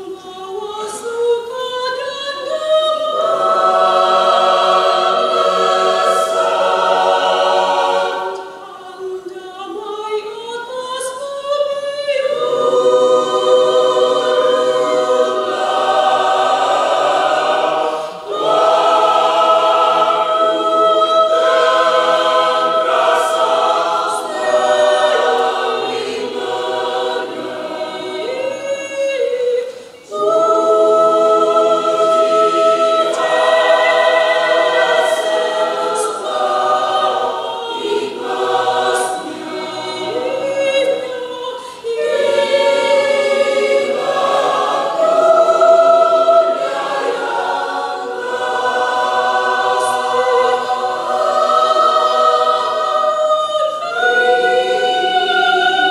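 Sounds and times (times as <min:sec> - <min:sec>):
mixed choir singing: 0:00.0 - 0:55.9.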